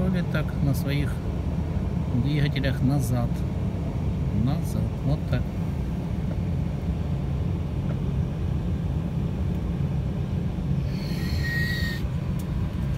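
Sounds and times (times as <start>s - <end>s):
low propeller drone: 0.0s - 12.9s
short high whine: 10.8s - 12.2s.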